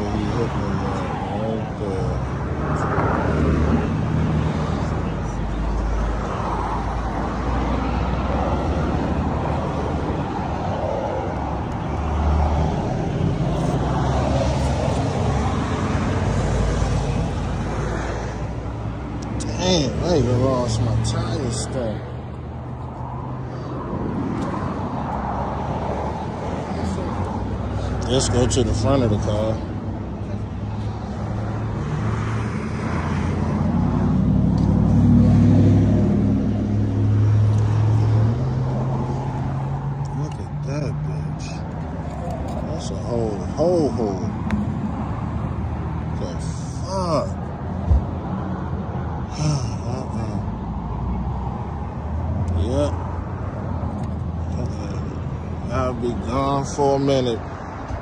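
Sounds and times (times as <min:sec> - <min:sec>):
road traffic rumble: 0:00.0 - 0:58.0
vehicle engine humming: 0:00.0 - 0:58.0.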